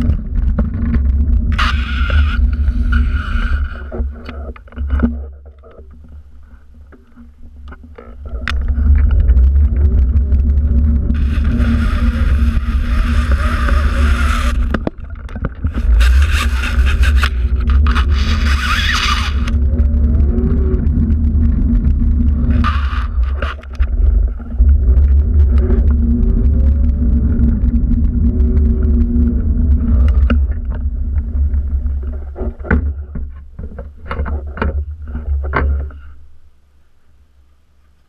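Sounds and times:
scraping hiss: 1.6 - 4.6, 11.2 - 14.9, 15.6 - 19.6, 22.2 - 24.5
wind buffeting microphone: 8.4 - 33.0.

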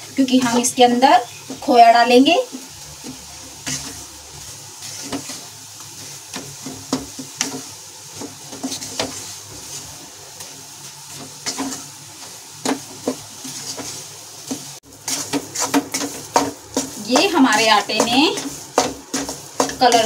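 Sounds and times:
soft steady sizzle: 0.0 - 20.0
spatula scraping metal pan: 2.5 - 4.2, 4.8 - 10.0, 11.1 - 20.0.

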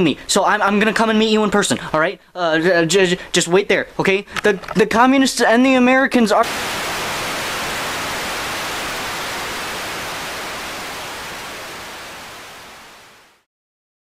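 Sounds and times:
television static hiss: 6.4 - 13.4.

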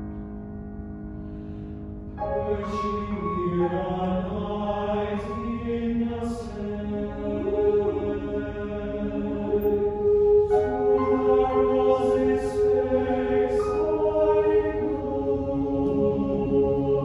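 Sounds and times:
mixed choir singing: 2.3 - 17.0
piano chord: 7.2 - 17.0.

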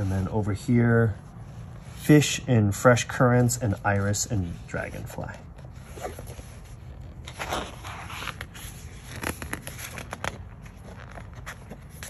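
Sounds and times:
book pages turning: 3.3 - 12.0.

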